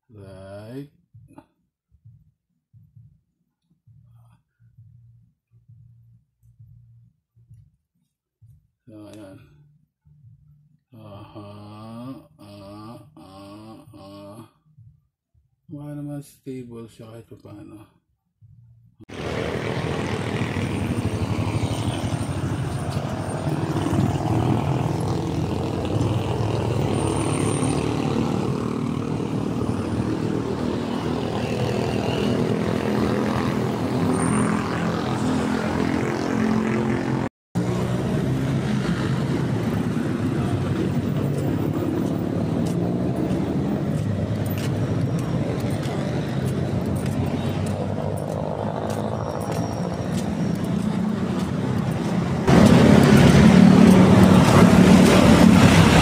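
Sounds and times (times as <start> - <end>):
motorcycle engines running: 19.1 - 56.0.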